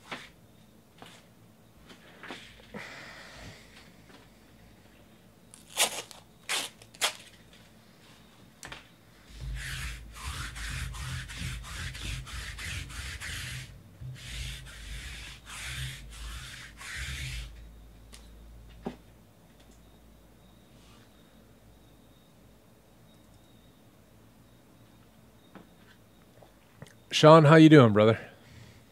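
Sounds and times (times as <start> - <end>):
rubbing strokes on table: 9.3 - 17.7.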